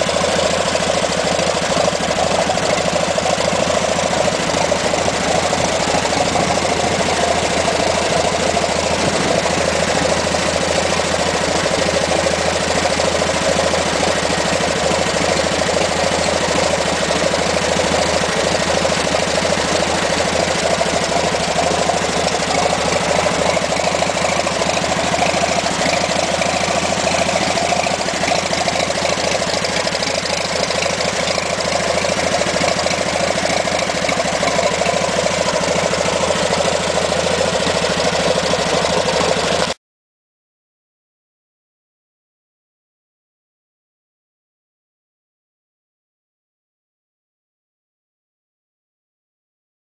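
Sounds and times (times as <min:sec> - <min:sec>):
engine idling: 0:00.0 - 0:39.8.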